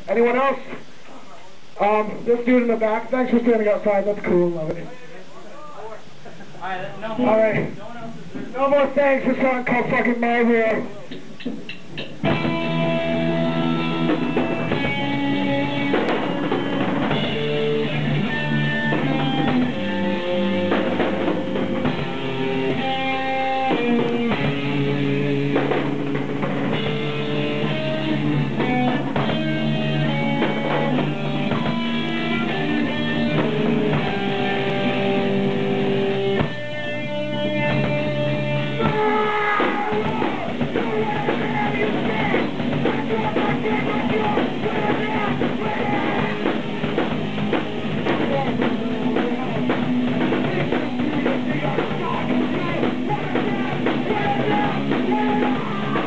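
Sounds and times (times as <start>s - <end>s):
live rock band playing: 12.2s - 56.0s.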